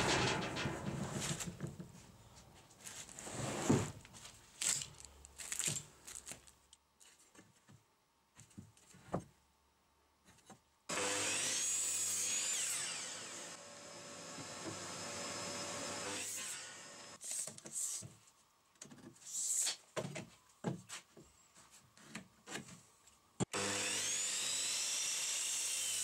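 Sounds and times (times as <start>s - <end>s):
electric miter saw whining: 10.9s - 17.2s, 23.5s - 26.0s.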